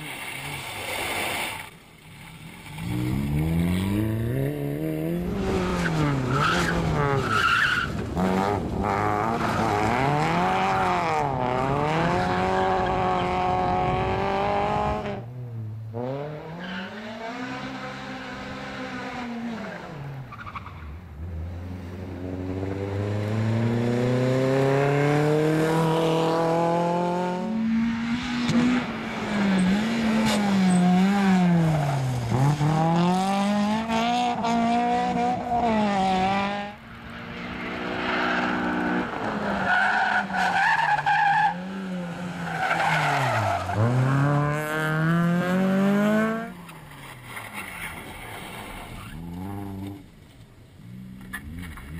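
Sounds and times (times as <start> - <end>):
car engines revving: 2.1 - 51.9.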